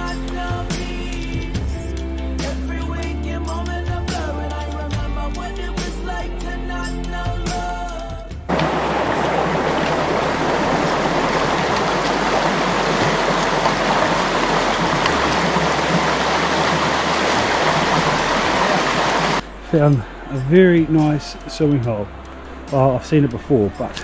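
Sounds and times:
stream water rushing: 8.5s - 20.2s.

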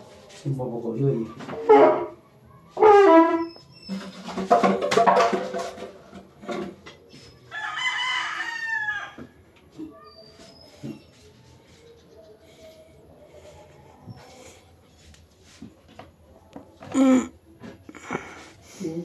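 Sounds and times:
rooster crowing: 7.5s - 9.3s.

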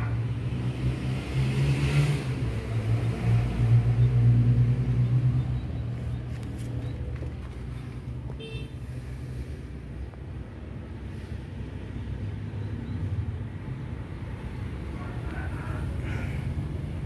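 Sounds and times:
motor vehicle engine hum: 0.0s - 17.0s.

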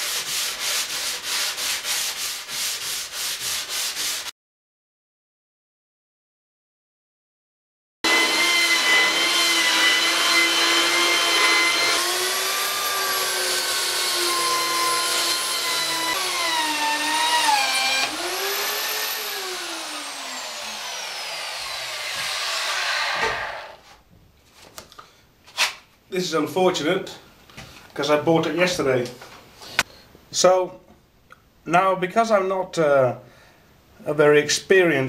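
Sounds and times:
electric sander whining on wood: 8.0s - 23.8s.

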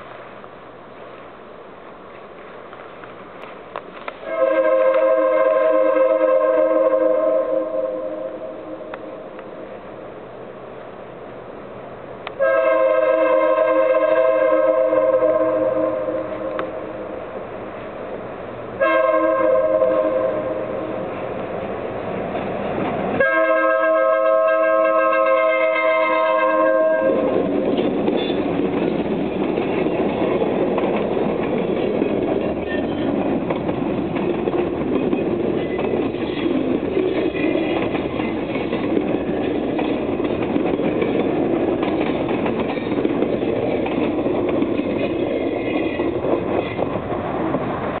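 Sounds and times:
freight train rolling on rails: 0.0s - 48.0s
locomotive horn chord: 4.2s - 8.9s, 12.4s - 16.6s, 18.8s - 20.8s, 23.2s - 27.3s.

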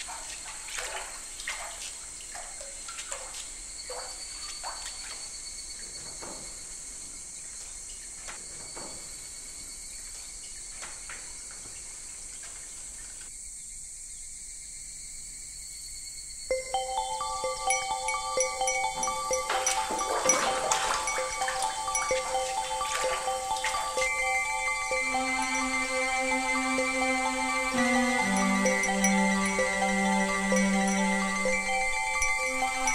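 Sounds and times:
water dripping into water: 0.0s - 5.2s, 16.5s - 32.9s
faint insect-like chirring: 0.0s - 32.9s
steady high hiss: 15.0s - 32.9s.

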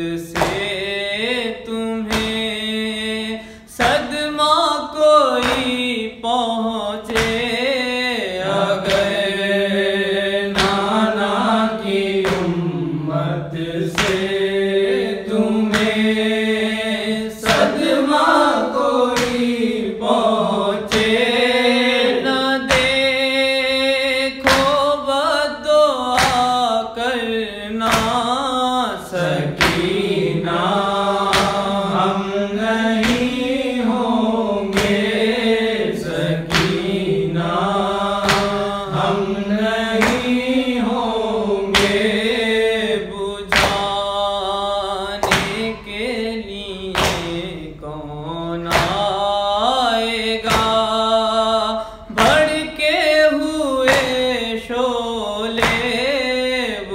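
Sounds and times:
man singing a mourning lament: 0.0s - 56.9s.

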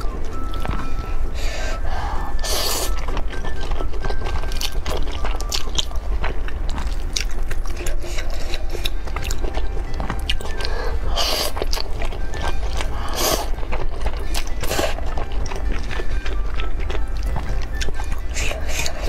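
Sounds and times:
wet chewing with clicks: 2.3s - 19.0s.

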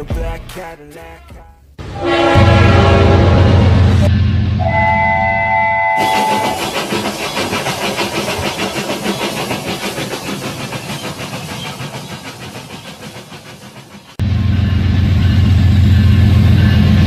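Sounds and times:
two-tone train whistle: 1.8s - 6.8s
toy steam locomotive chuffing: 5.8s - 14.2s.

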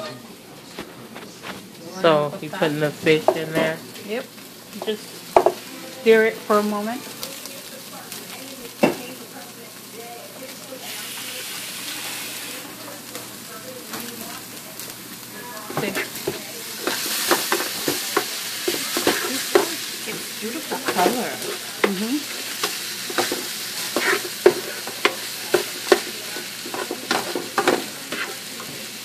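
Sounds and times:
food sizzling in a frying pan: 0.0s - 29.0s
utensil scraping a pan: 20.6s - 28.4s.

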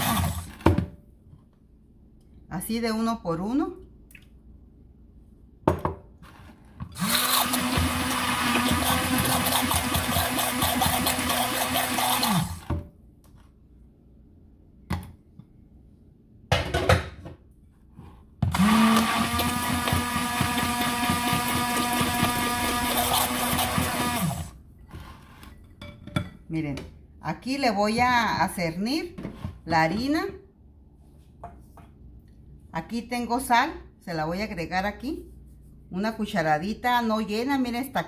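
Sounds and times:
immersion blender whirring: 0.0s - 0.6s, 7.0s - 12.8s, 18.5s - 24.6s.

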